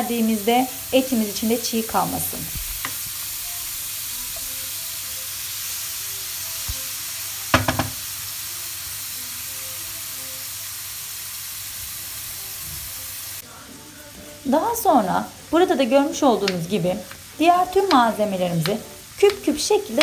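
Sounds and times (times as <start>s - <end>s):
meat sizzling in oil: 0.0s - 20.0s
spoon knocking pan: 7.5s - 8.1s.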